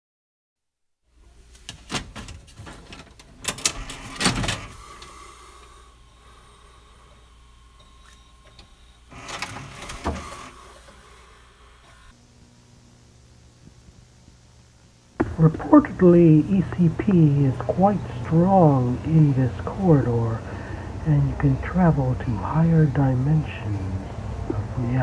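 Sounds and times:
tape mechanism clicks and clunks: 1.6s - 5.7s, 7.8s - 11.0s.

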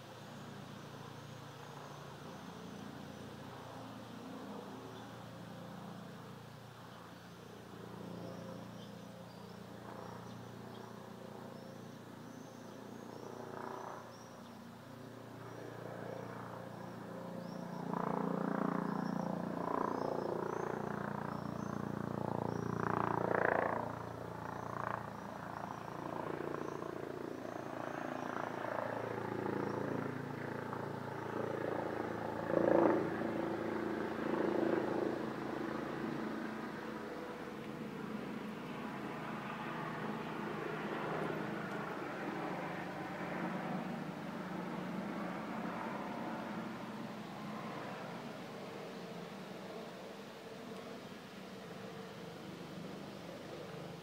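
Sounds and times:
helicopter flying overhead: 0.0s - 54.0s.

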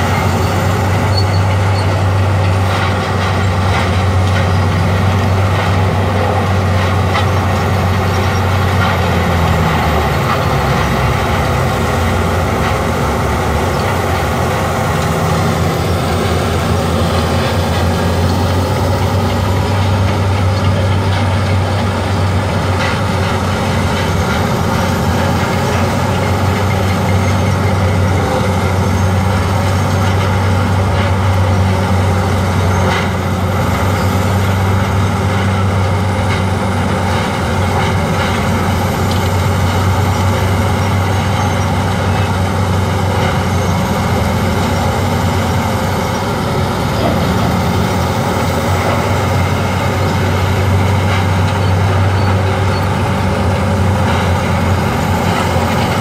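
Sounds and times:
heavy diesel machinery droning: 0.0s - 56.0s.

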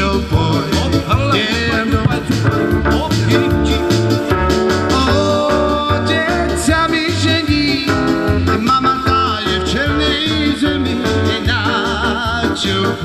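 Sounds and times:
lively song with singing: 0.0s - 13.0s
pulsing bass beat: 1.0s - 5.2s.

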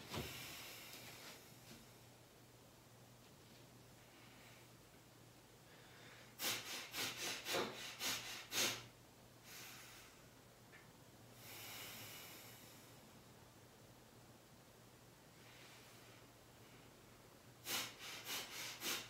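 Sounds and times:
man sniffing and puffing: 6.4s - 8.9s, 17.6s - 19.0s.

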